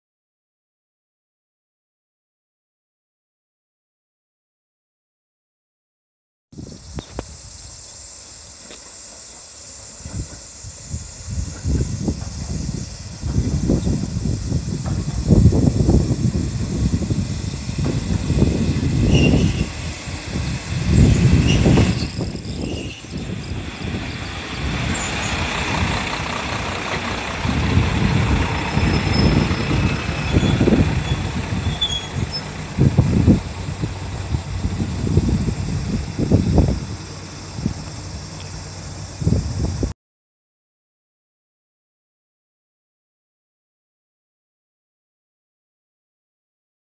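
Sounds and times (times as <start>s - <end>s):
high-pitched hiss: 6.6s - 25.6s, 28.5s - 39.9s
diesel railcar engine running: 6.6s - 39.9s
low rumbling: 9.6s - 39.9s.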